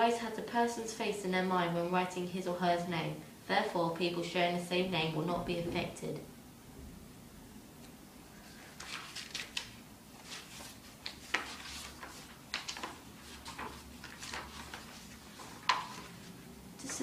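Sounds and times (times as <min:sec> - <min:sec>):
notebook pages rustling: 0:08.4 - 0:17.0.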